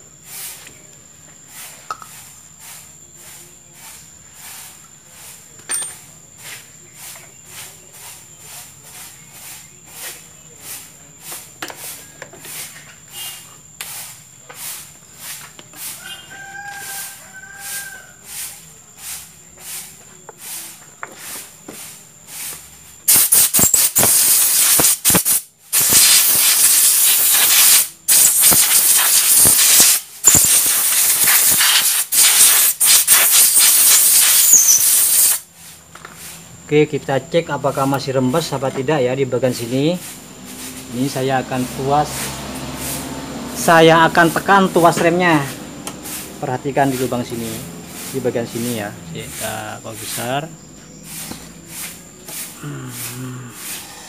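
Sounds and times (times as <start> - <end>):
air blow gun hissing: 22.4 - 36.4, 39.4 - 54.0.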